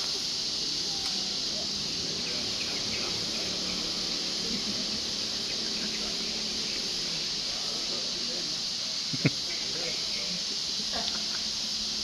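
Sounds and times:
forest insects droning: 0.0s - 12.0s.

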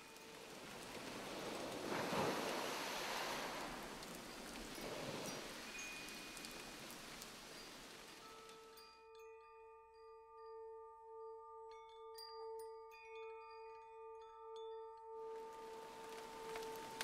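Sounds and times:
rain-like hiss: 0.0s - 8.9s, 15.3s - 17.0s
high wind-chime pings: 3.7s - 17.0s
soft ambient music: 14.0s - 17.0s.

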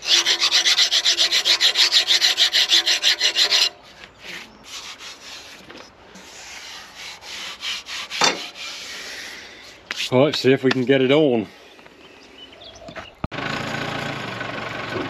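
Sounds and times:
hand file rasping on metal: 0.0s - 10.1s.

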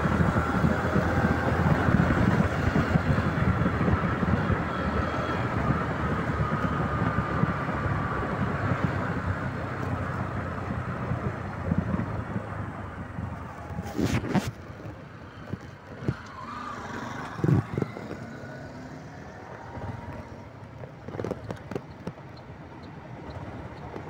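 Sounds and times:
motorcycle engine running: 0.0s - 14.4s
wind noise on microphone: 0.0s - 22.3s.

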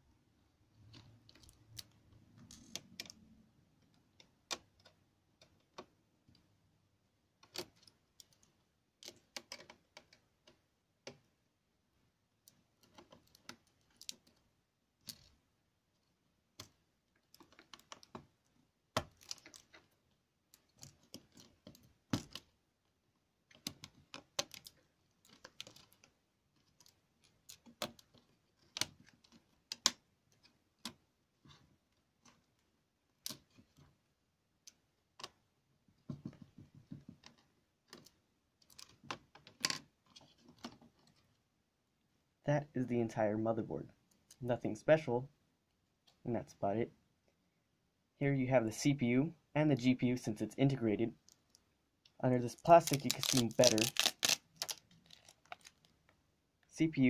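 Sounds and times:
plastic laptop parts clicking: 0.8s - 6.5s, 7.4s - 11.3s, 16.5s - 22.6s, 23.4s - 33.9s, 52.6s - 56.0s.

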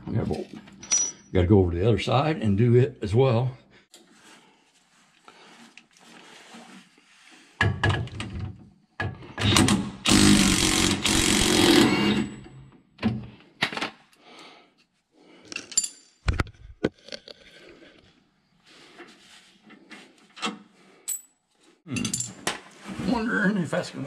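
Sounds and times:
metal knocks and clinks: 0.7s - 1.3s, 15.5s - 16.5s, 21.1s - 22.6s
power tool running: 9.4s - 12.3s.

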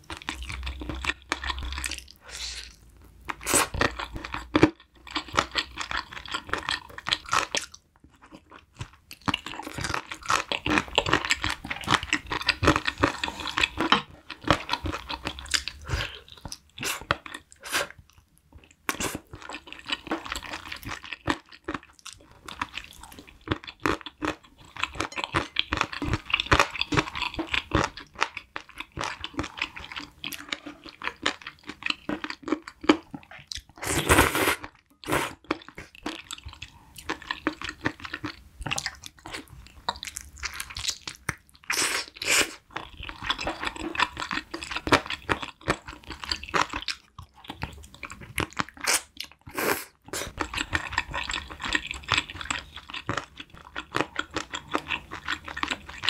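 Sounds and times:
chewing and crunching: 0.0s - 56.0s.

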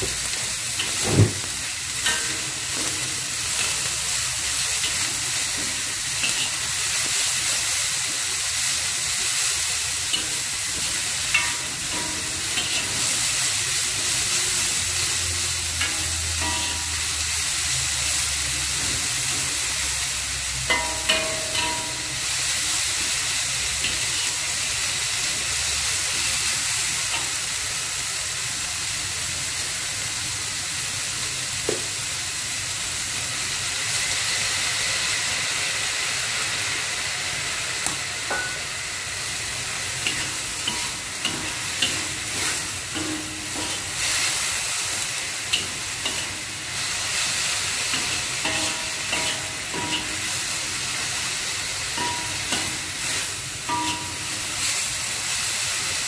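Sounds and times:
vegetables sizzling in a wok: 0.0s - 56.0s
metal spatula scraping a pan: 4.6s - 6.8s, 10.0s - 17.8s, 40.0s - 44.5s, 45.5s - 50.9s, 51.9s - 54.8s.

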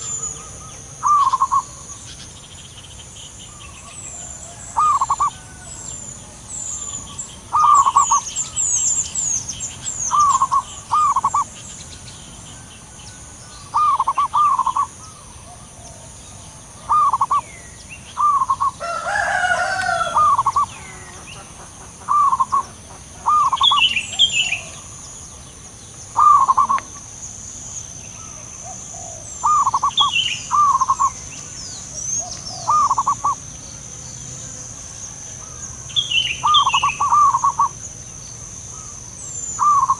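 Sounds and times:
doves cooing: 0.0s - 2.2s, 3.6s - 11.6s, 12.7s - 25.2s, 26.1s - 27.3s, 28.1s - 33.7s, 34.4s - 37.8s, 38.7s - 39.9s
loud rough bird call: 0.0s - 2.3s, 3.4s - 11.6s, 12.7s - 16.1s, 16.7s - 25.2s, 26.1s - 27.2s, 28.2s - 33.4s, 35.1s - 37.8s, 38.7s - 39.9s
thin high bird chirps: 29.4s - 33.4s.

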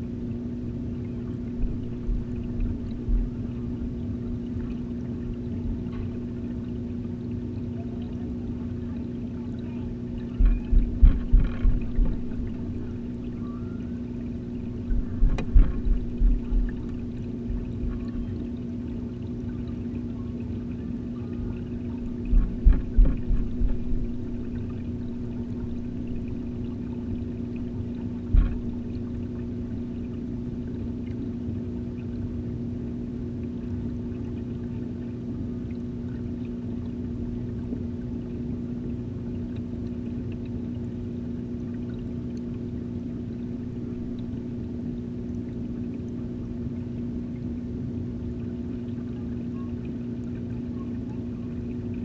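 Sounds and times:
filter pump hum underwater: 0.0s - 52.0s
dull knock: 10.4s - 12.6s, 22.3s - 24.2s.

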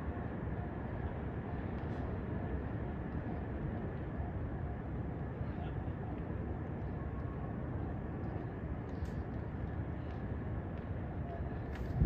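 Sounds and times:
low urban background rumble: 0.0s - 12.0s.

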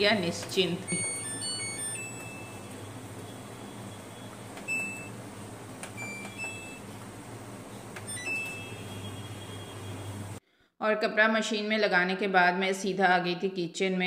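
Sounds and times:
electronic beeps: 0.9s - 5.2s, 6.0s - 6.8s, 8.1s - 10.2s.

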